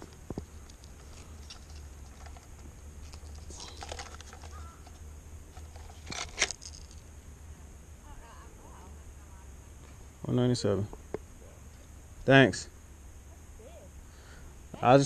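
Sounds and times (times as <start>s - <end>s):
low steady rumble: 0.0s - 15.0s
clicks and rattles of gripper: 0.7s - 5.0s.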